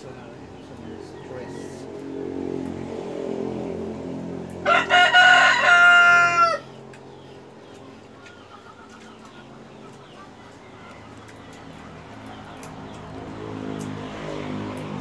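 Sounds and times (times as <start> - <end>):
low engine hum: 0.0 - 6.0, 6.6 - 15.0
rooster crowing: 4.6 - 6.8.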